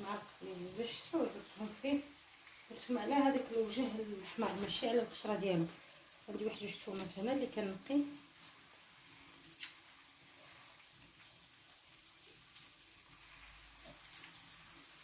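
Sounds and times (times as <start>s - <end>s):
faint steady hiss: 0.0s - 15.0s
garlic skin crackling: 6.3s - 7.6s, 8.2s - 11.3s, 13.2s - 15.0s.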